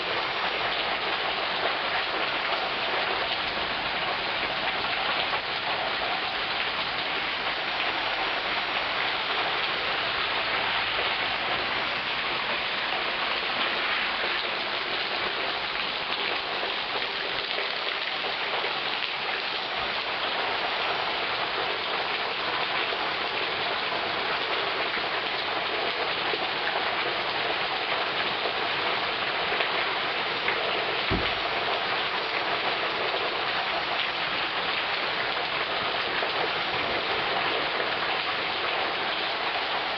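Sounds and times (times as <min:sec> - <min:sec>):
heavy rain pouring: 0:00.0 - 0:39.9
low thump: 0:31.1 - 0:31.4.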